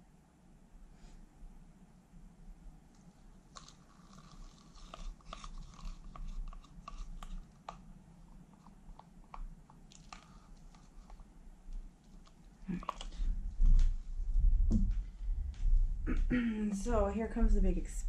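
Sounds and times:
stick stirring paint in plastic cup: 3.0s - 13.9s.

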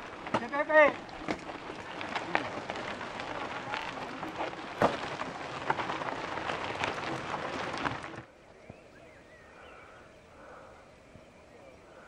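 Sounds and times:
bike tyres crunching over gravel: 0.0s - 9.0s
clicks of grit and stones: 0.1s - 8.3s.

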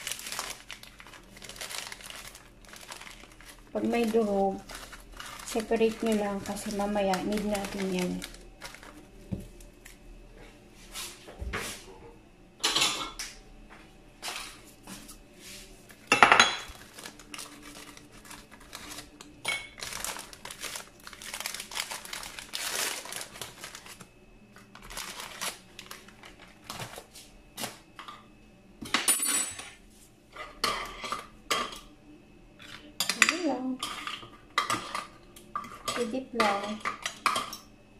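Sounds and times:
plastic wrapper crinkling: 0.0s - 10.0s, 15.9s - 27.8s
spoon and biscuits clinking on dishes: 16.1s - 20.1s, 32.6s - 37.7s.

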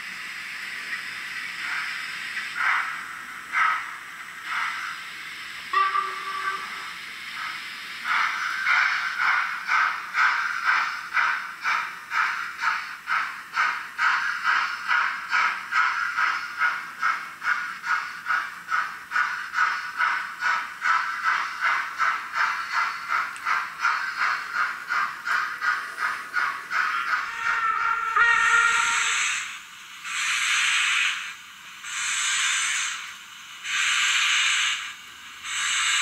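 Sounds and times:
model train chuffing from speaker: 0.0s - 36.0s.

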